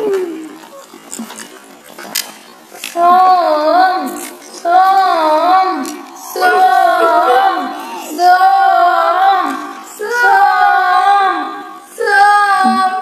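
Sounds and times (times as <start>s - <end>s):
song with child-like singing voice: 6.4s - 8.6s.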